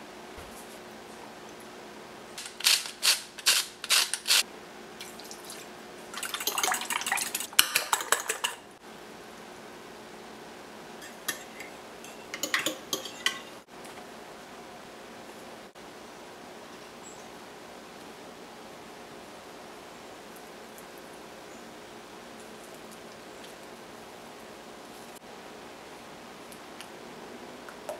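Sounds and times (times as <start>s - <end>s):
whisk clinking against glass: 6.2s - 8.6s, 11.3s - 13.5s.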